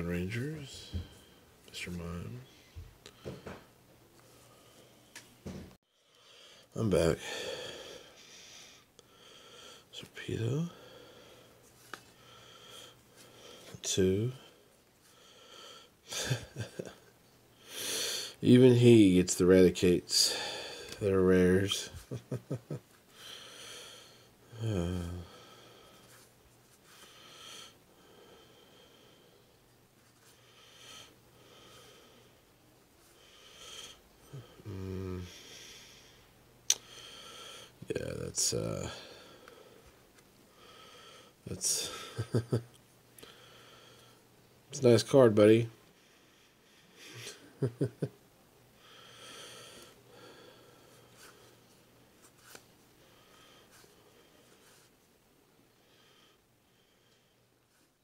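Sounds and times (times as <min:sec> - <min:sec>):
man humming low: 0:24.5 - 0:25.3, 0:34.3 - 0:35.4.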